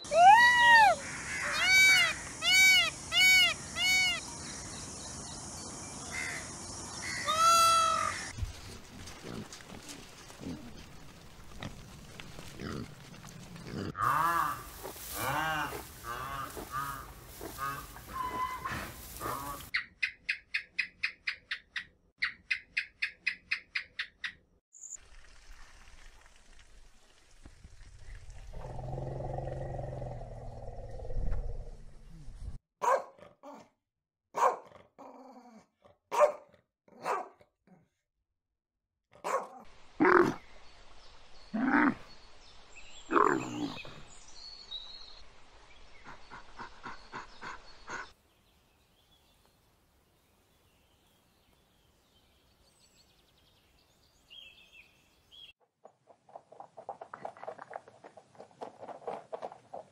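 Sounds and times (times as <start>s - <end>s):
high animal calls: 0.1s - 4.2s, 7.0s - 8.3s, 13.9s - 19.7s
low rumbling growl: 28.3s - 32.6s
dog barking: 32.8s - 33.7s, 34.4s - 34.8s, 36.1s - 37.5s, 39.2s - 39.6s.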